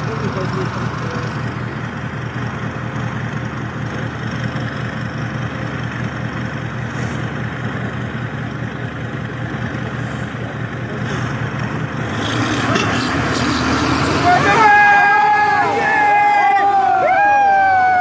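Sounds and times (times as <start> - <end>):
tractor diesel engine running: 0.0 - 18.0.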